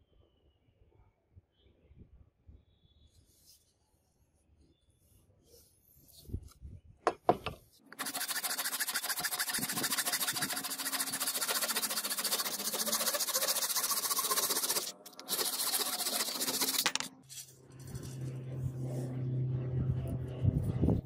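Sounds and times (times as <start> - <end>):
hand saw cutting wood: 7.9 - 17.1.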